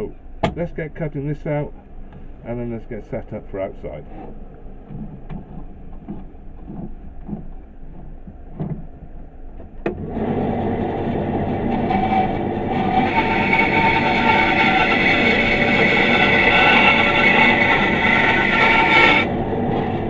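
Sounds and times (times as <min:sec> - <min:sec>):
wood handling knocks: 0:00.4 - 0:00.6, 0:04.9 - 0:08.9
bandsaw running: 0:10.0 - 0:20.0.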